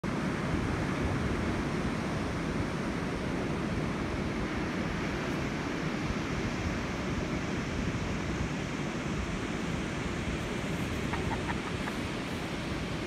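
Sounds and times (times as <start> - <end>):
ocean surf: 0.1 - 13.0
wind on microphone: 3.0 - 13.0.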